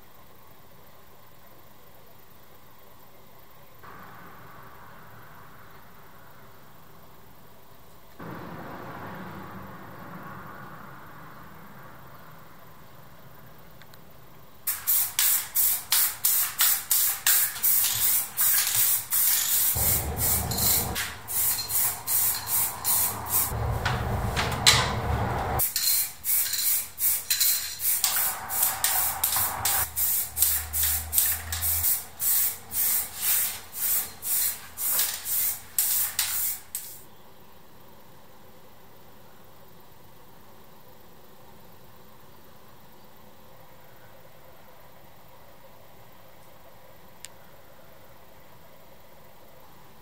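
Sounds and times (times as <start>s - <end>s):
spray paint hissing: 14.7s - 23.6s, 25.6s - 37.0s.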